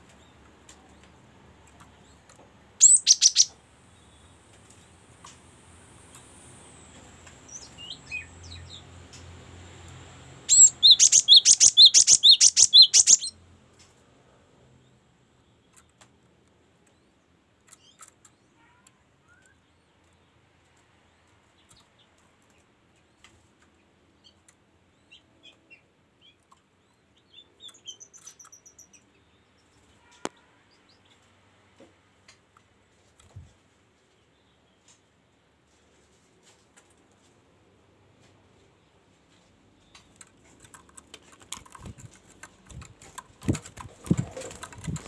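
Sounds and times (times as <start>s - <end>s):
faint bird chirps: 2.0s - 5.4s, 10.4s - 13.4s, 16.8s - 20.3s
bird singing high notes: 10.5s - 13.3s.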